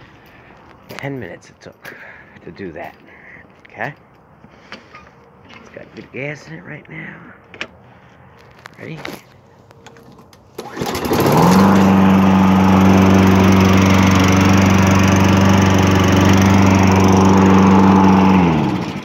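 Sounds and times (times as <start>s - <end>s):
lawn mower engine starting: 9.8s - 19.0s.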